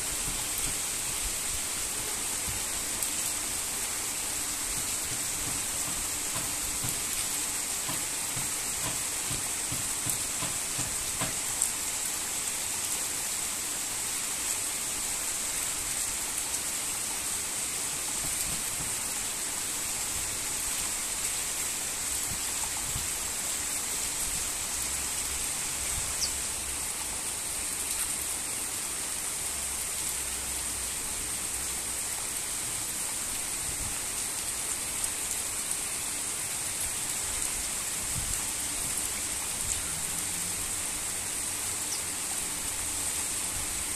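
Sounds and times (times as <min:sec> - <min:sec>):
heavy rain falling: 0:00.0 - 0:43.9
raindrops ticking: 0:04.6 - 0:11.7.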